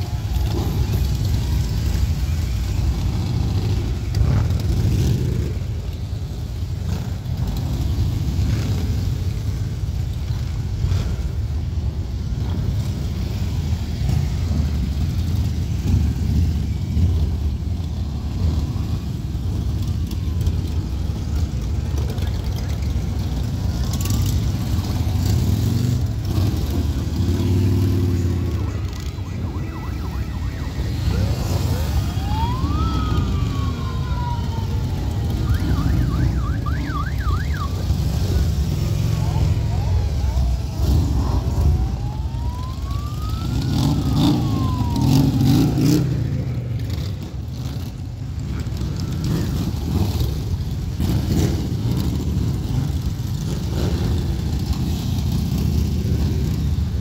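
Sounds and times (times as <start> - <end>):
siren: 0.1 - 11.2, 12.4 - 57.0
motorcycles rumbling past: 12.4 - 36.8.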